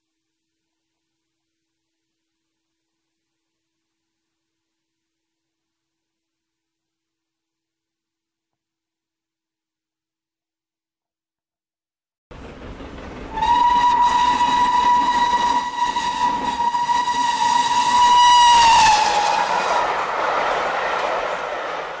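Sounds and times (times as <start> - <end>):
train noise: 12.3 - 22.0
steam locomotive whistle: 13.3 - 20.2.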